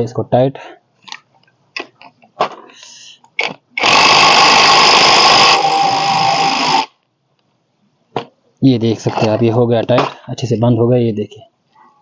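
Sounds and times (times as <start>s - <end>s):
cordless impact wrench running: 3.8s - 6.9s.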